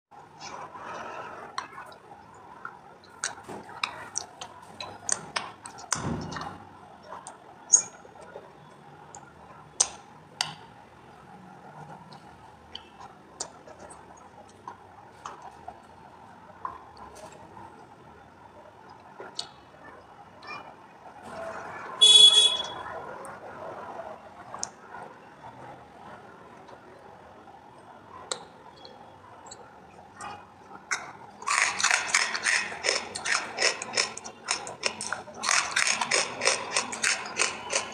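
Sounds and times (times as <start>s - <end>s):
crunching and chewing clay: 30.2s - 37.9s.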